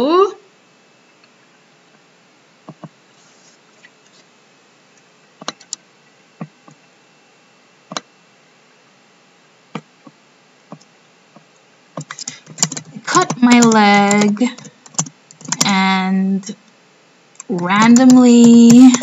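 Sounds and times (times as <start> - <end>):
faint room hiss: 0.0 - 19.0
computer mouse clicking: 5.4 - 5.8, 7.9 - 8.1, 12.0 - 15.8, 17.4 - 19.0.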